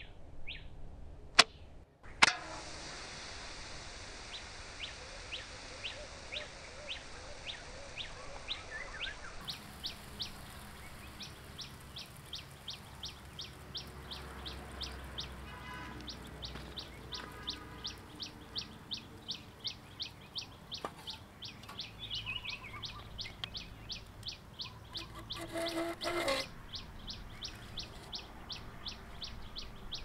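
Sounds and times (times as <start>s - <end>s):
lower bird call: 4.3s - 30.0s
small bird chirping: 4.3s - 30.0s.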